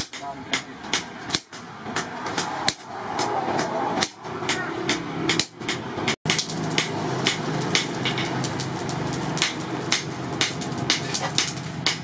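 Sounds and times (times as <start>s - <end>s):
forge blower rushing with low hum: 6.3s - 12.0s.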